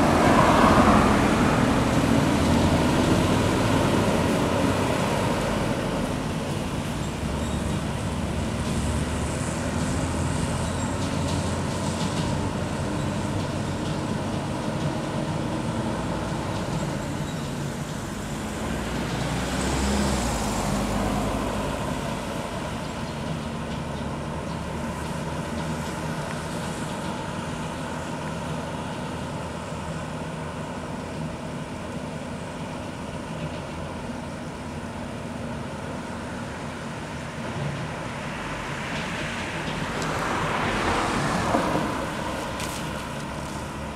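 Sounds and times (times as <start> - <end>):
vehicle passing close by: 0.0 - 6.0, 18.2 - 22.8, 38.4 - 43.9
truck engine and road noise: 0.0 - 43.9.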